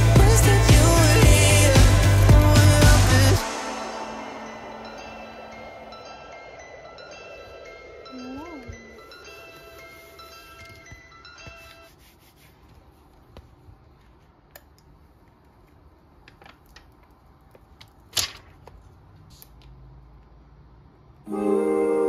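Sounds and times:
hands rubbing laptop stand: 11.4 - 13.6.

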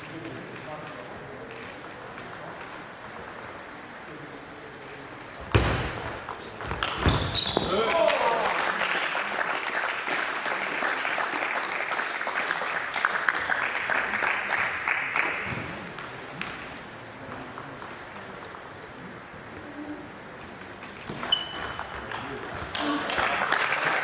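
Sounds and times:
spectators clapping: 7.7 - 16.0, 22.1 - 24.0.

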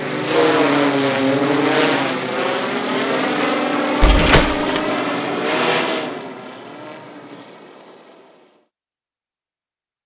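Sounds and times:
drone landing thud: 4.0 - 4.9.

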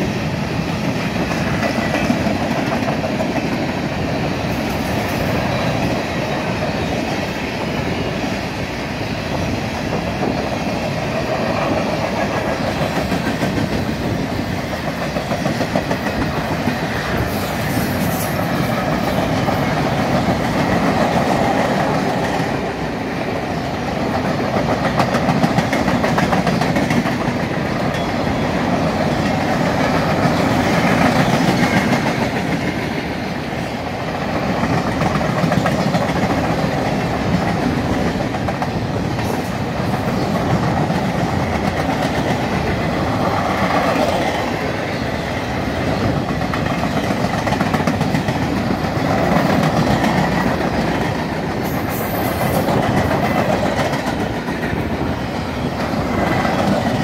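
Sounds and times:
train wheels rumbling on rail: 0.0 - 57.0
wheels clicking over rail joints: 34.1 - 57.0.

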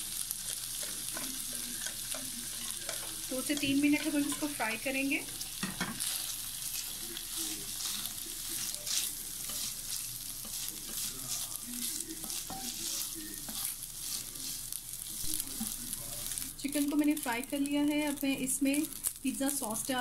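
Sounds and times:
chicken sizzling in oil: 0.0 - 20.0
wooden spatula scraping pan: 7.7 - 11.2, 11.9 - 14.7.

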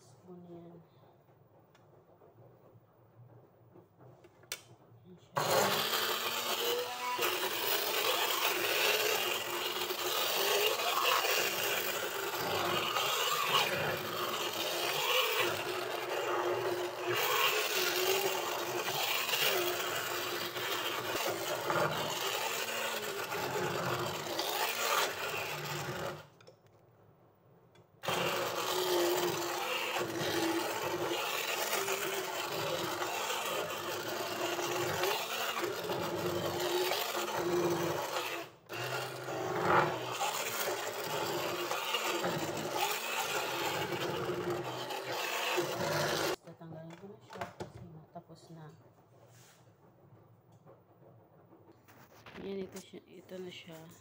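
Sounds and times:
electric stick blender motor hum: 5.4 - 26.5, 28.0 - 46.4.

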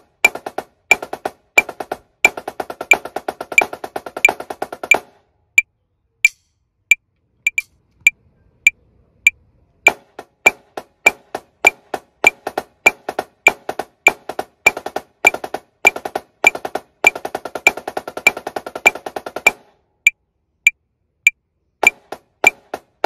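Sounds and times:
snare drum playing: 0.0 - 5.1, 9.9 - 19.7, 21.8 - 23.0
metronome ticking: 6.2 - 7.7.

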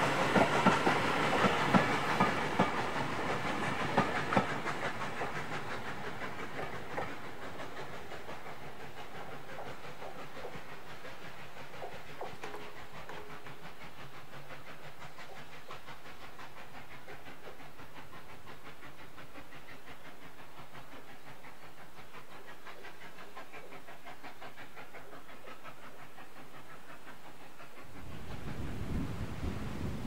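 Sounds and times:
hiss of steam: 0.0 - 30.0
steam train running: 0.0 - 30.0
wind on microphone: 28.0 - 30.0.

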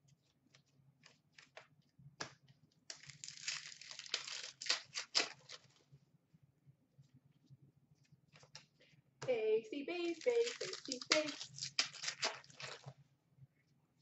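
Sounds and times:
wrapper crinkling and tearing: 2.9 - 5.8, 10.0 - 12.9.

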